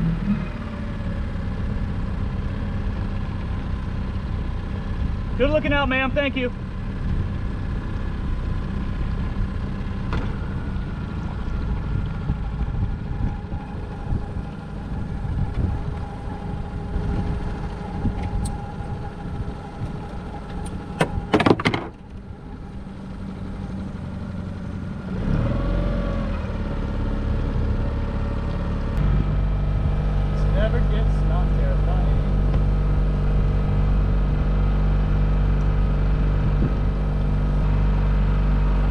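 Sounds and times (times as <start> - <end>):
outboard motor running: 0.0 - 38.9.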